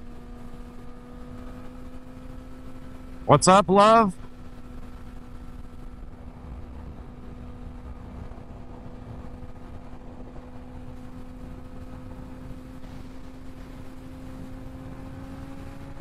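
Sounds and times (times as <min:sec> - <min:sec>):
motorcycle engine droning: 0:00.0 - 0:16.0
wind rumble on microphone: 0:04.2 - 0:16.0.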